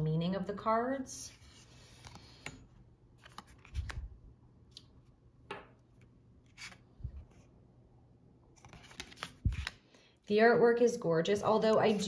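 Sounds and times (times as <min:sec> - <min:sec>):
card sliding: 0:08.6 - 0:09.8.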